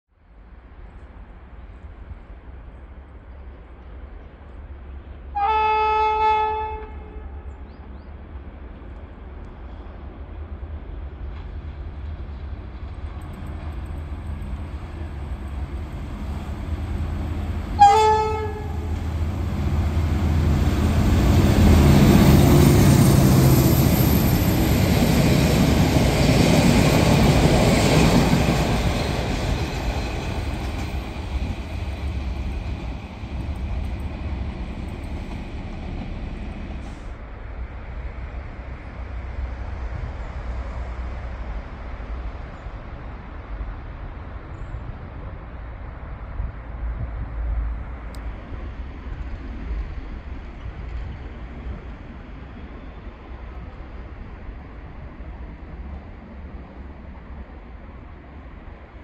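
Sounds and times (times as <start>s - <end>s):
locomotive horn blast: 5.4s - 7.4s, 17.8s - 19.0s
locomotive engine rumble: 7.0s - 38.9s.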